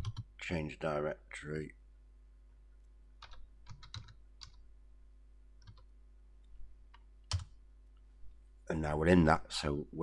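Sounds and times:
keyboard typing: 0.0s - 0.3s, 3.2s - 4.6s, 5.6s - 5.9s, 6.9s - 7.5s.

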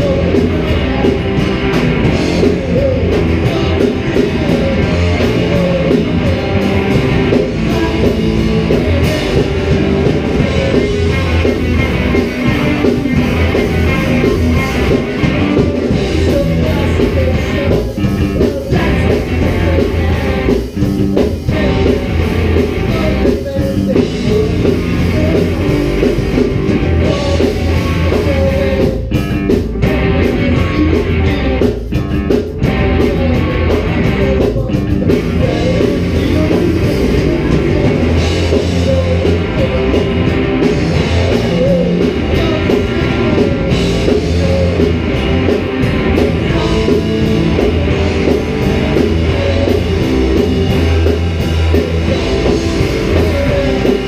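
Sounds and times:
bass guitar: 0.0s - 54.0s
distorted electric guitars: 0.0s - 54.0s
drum kit: 0.0s - 54.0s.

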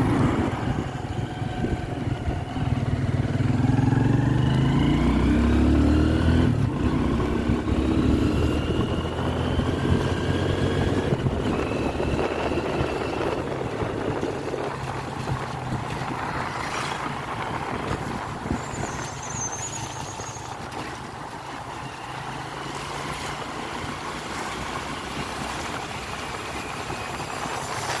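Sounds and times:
motorcycle engine humming: 0.0s - 28.0s
wind and tyres on wet road: 0.0s - 28.0s.

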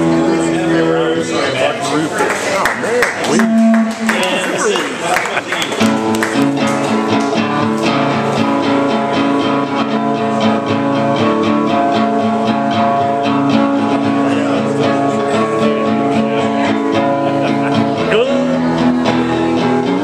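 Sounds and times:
acoustic guitar strumming: 0.0s - 1.6s, 3.3s - 20.0s.

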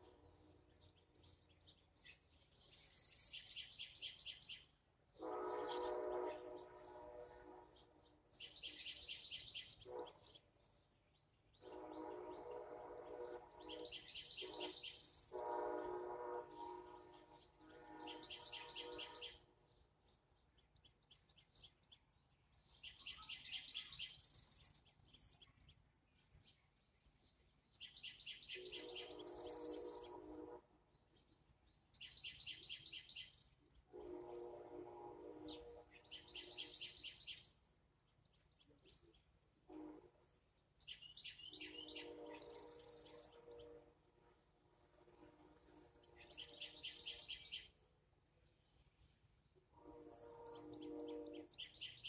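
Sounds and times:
lower-pitched bird calls: 16.6s - 19.5s, 27.8s - 30.6s, 35.3s - 37.6s.

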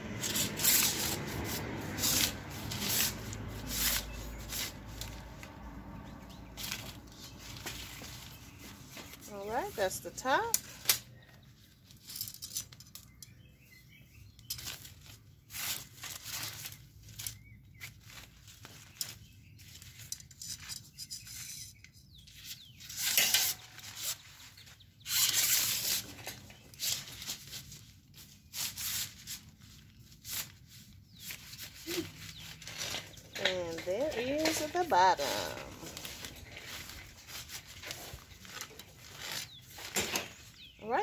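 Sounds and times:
fabric net rustling and flapping: 14.6s - 20.2s, 23.1s - 41.0s.

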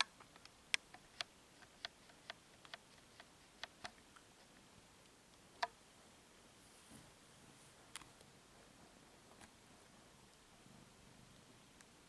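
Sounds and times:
sharp clicks: 0.0s - 5.8s.

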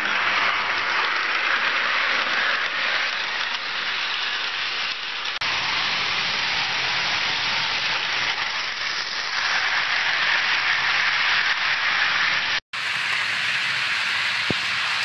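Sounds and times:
model train rattling on rails: 0.0s - 15.0s.

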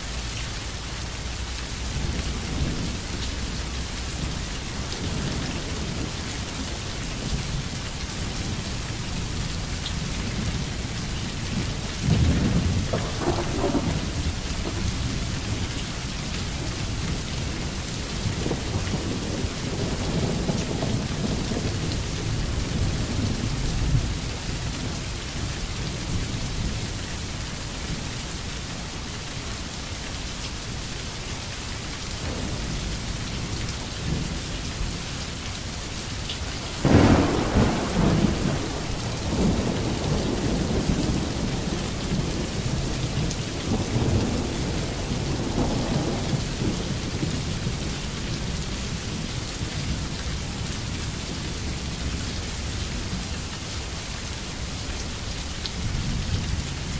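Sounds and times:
heavy rain: 0.0s - 56.9s
rolling thunder: 11.7s - 15.8s, 32.2s - 35.0s, 36.8s - 49.2s.

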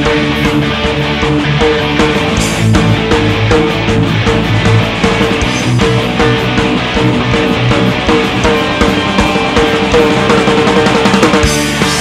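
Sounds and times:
electric guitars: 0.0s - 12.0s
live rock band playing: 0.0s - 12.0s.

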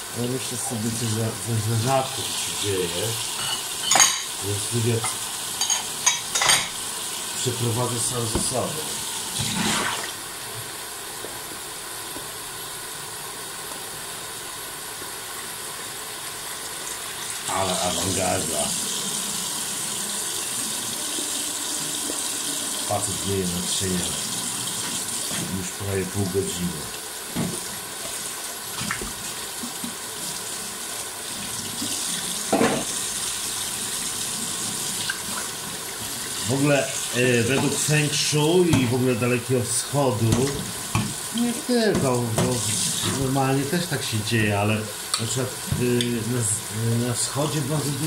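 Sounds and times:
tap water running into sink: 0.2s - 12.7s, 16.1s - 48.0s
tap running into steel sink: 8.3s - 8.5s.

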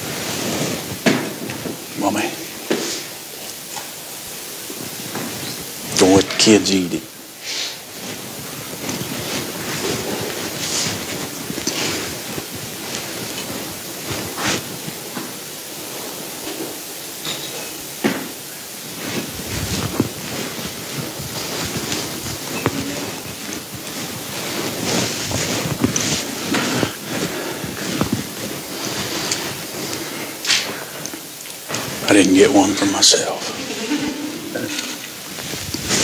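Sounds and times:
room noise hiss: 0.0s - 36.0s
soft clicks and rustles: 7.9s - 32.0s, 34.7s - 36.0s.

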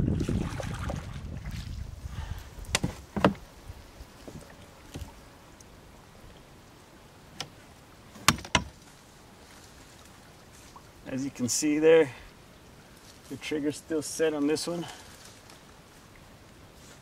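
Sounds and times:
paddling water: 0.0s - 11.0s
branches knocking on boat: 2.7s - 3.5s, 8.2s - 8.8s.

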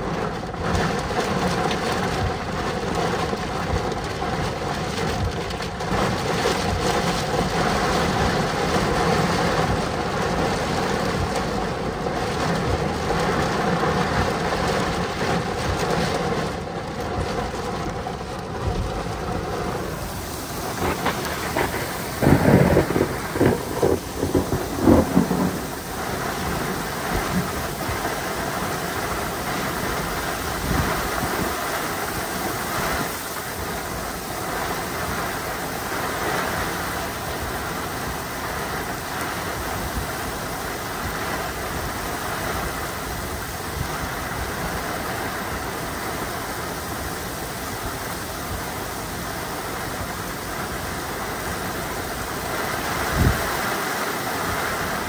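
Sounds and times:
heavy rain downpour: 0.0s - 55.0s
thunder rumbling: 3.6s - 39.8s.

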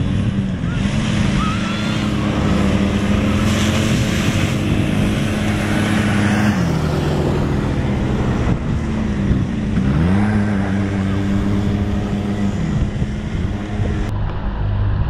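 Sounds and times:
small atv engine running: 0.0s - 15.0s.

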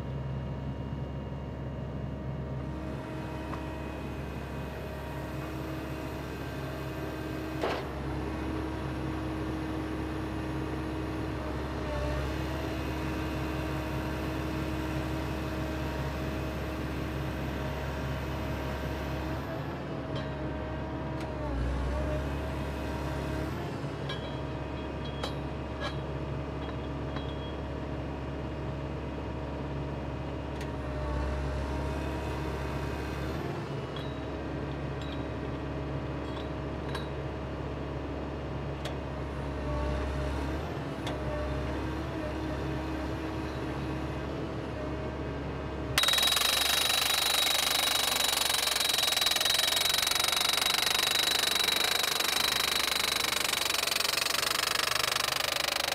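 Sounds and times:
drill rig engine and hydraulics: 45.9s - 55.9s.

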